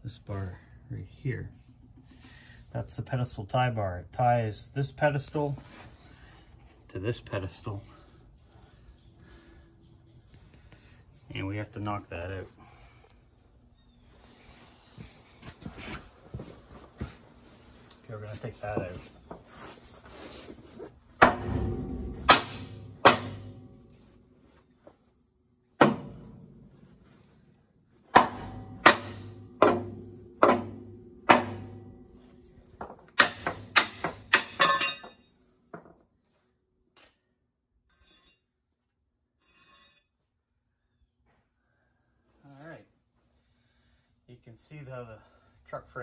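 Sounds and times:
sledgehammer striking steel: 0:21.2 - 0:24.0, 0:25.8 - 0:26.7, 0:28.1 - 0:32.4, 0:33.2 - 0:35.2.

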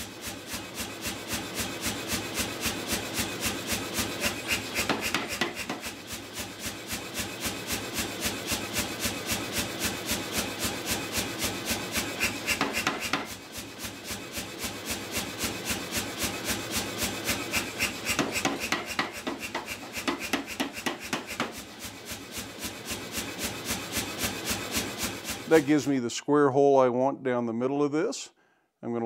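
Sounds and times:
power hammer striking hot steel: 0:00.0 - 0:25.7.

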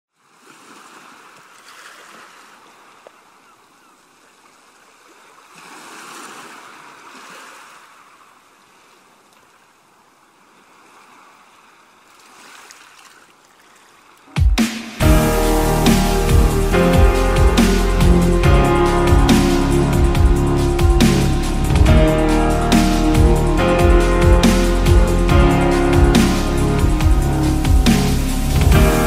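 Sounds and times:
waves washing onto beach: 0:00.2 - 0:14.4.

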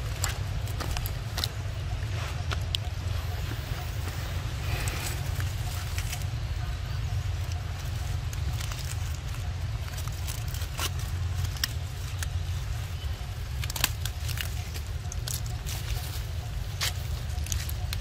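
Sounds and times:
dry leaves and twigs crackling: 0:00.0 - 0:18.0
twig snap: 0:13.6 - 0:15.5.

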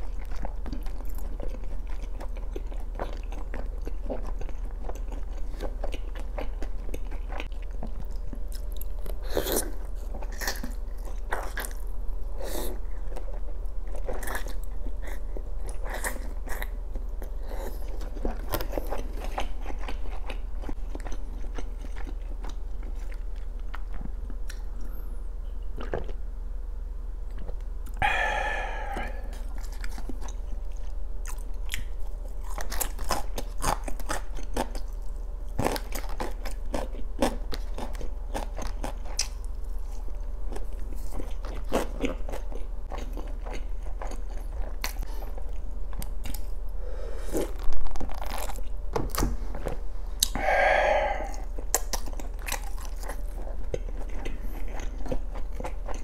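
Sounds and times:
close chewing mouth sounds: 0:00.0 - 0:25.1, 0:25.7 - 0:26.2, 0:27.3 - 0:56.0.

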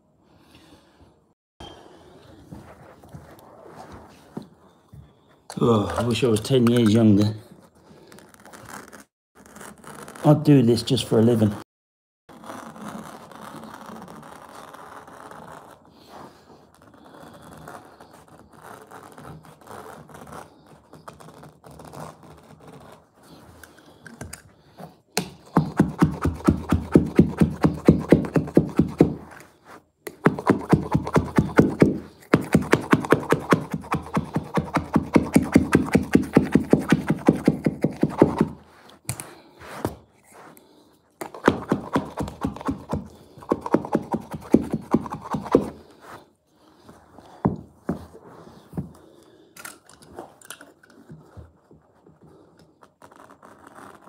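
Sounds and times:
blade cutting carpet: 0:12.3 - 0:49.2.

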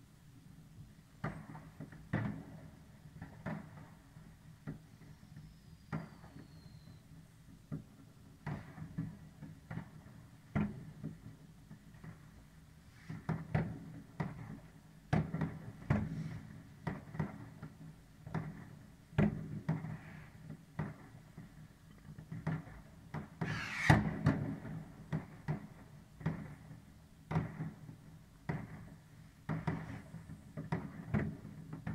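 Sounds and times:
hissing crackle of fireworks: 0:08.4 - 0:31.9
fireworks bangs: 0:23.2 - 0:25.8.

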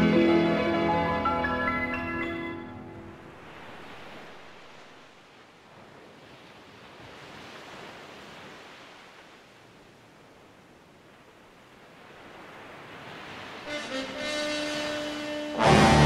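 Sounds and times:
surf breaking over rocks: 0:03.2 - 0:05.2, 0:12.2 - 0:16.0.

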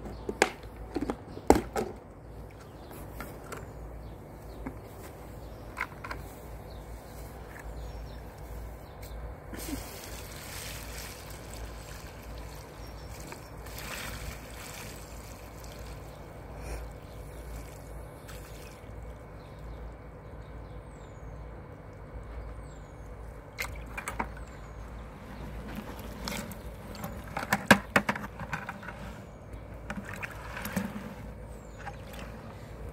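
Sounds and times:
water trickling and sloshing: 0:09.6 - 0:20.6, 0:21.8 - 0:27.7, 0:29.8 - 0:32.9.

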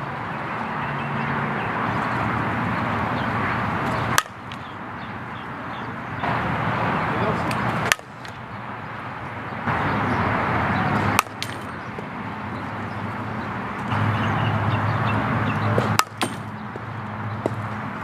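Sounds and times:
bat hitting ball: 0:03.2 - 0:04.8, 0:07.4 - 0:08.5, 0:10.8 - 0:12.1, 0:15.7 - 0:16.8.

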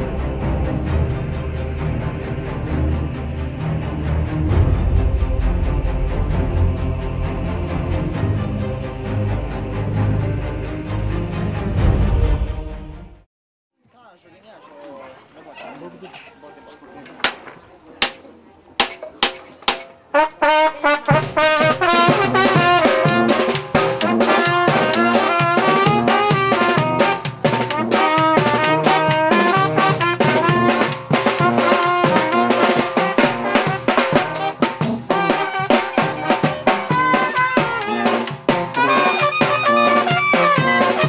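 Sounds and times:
wind band playing: 0:00.0 - 0:13.2, 0:20.1 - 0:41.0
trumpet and clarinet melody: 0:20.1 - 0:41.0
snare drum: 0:20.8 - 0:41.0.

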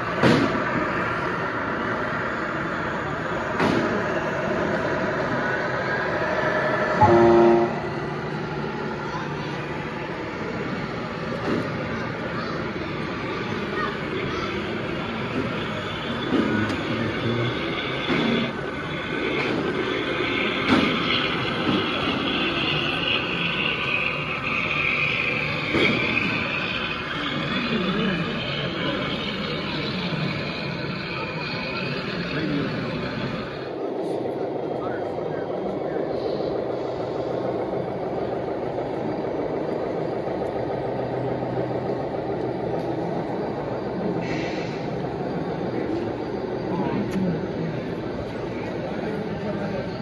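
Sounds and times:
toy truck engine hum: 0:07.0 - 0:33.7.

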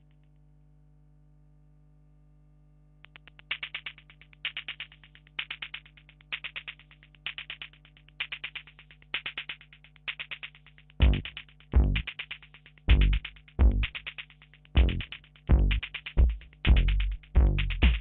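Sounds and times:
faint steady hum: 0:00.0 - 0:18.0
bright ticking synthesizer pulses: 0:03.0 - 0:05.2.

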